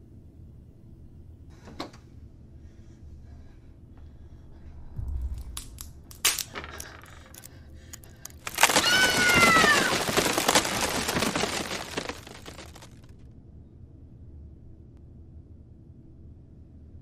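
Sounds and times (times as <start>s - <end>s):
loud crash: 4.8s - 7.4s, 8.4s - 13.0s.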